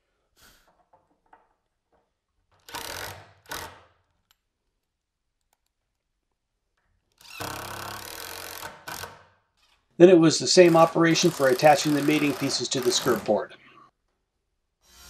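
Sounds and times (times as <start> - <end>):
cordless drill driving screws: 2.6 - 3.8, 7.2 - 9.2, 10.6 - 13.4.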